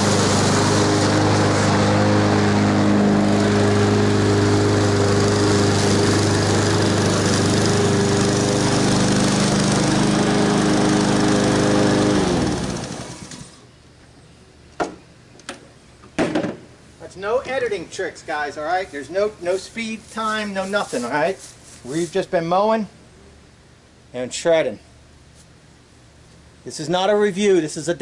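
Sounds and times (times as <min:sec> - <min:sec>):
lawn mower engine running: 0:00.0 - 0:13.7.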